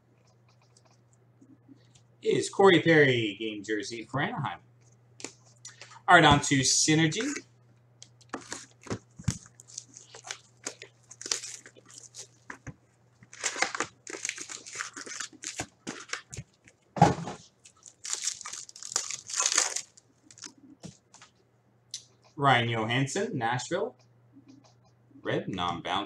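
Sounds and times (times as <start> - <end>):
plastic shrink wrap crinkling: 8.2 - 16.8, 17.5 - 20.6
card packs torn open: 8.4 - 12.6, 13.2 - 16.4, 17.6 - 20.5.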